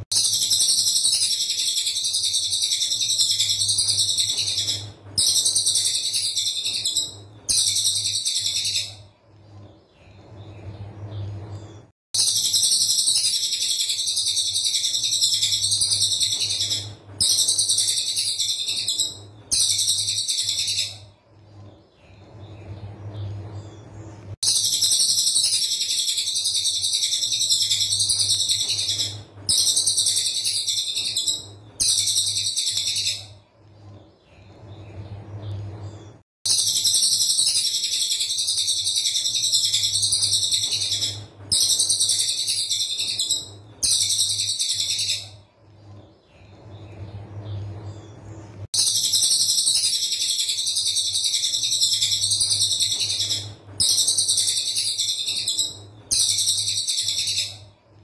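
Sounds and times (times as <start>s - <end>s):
bird singing shrill rapid notes: 0.0s - 9.0s, 12.2s - 21.0s, 24.4s - 33.4s, 36.5s - 45.4s, 48.8s - 57.6s
faint low hum: 0.0s - 58.0s.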